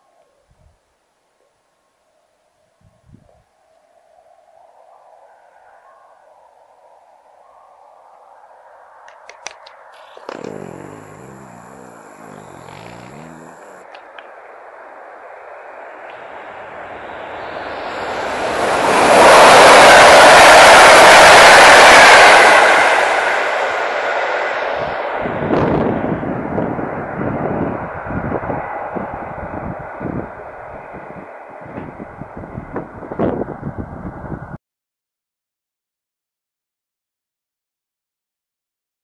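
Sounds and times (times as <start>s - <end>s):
train passing at speed: 14.4s - 34.5s
wind buffeting microphone: 24.8s - 34.6s.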